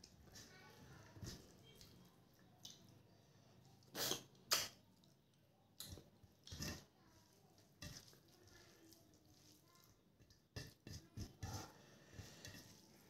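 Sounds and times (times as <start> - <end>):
wet squishing and chewing: 1.0 - 6.8.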